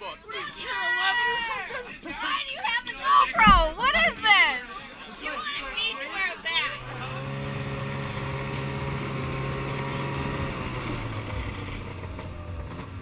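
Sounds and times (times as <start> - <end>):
snowmobile engine running: 6.7 - 13.0.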